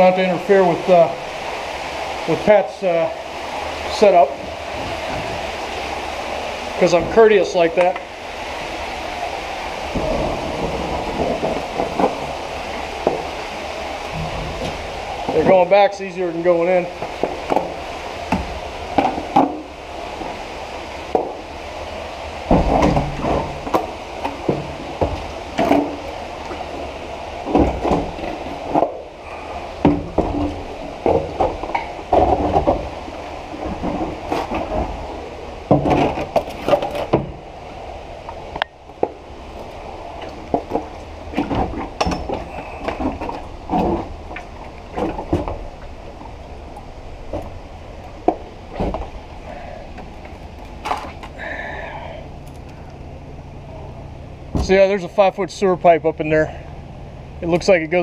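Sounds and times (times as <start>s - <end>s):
kayak knocking on stone walls: 13.0s - 13.4s, 21.1s - 21.5s.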